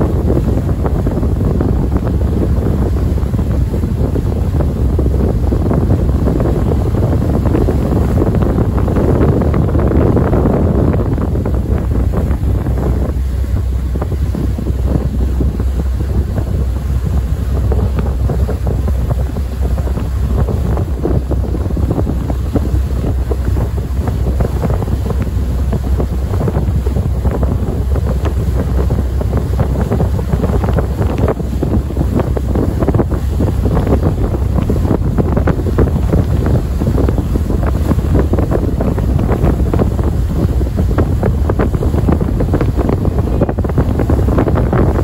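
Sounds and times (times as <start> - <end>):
engine rumble: 0.0 - 45.0
wind buffeting microphone: 0.0 - 45.0.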